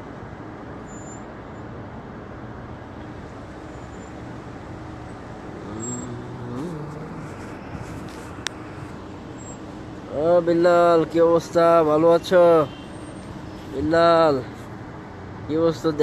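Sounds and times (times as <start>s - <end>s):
passing cars: 0.0s - 16.0s
car engine speeding up: 5.4s - 9.0s.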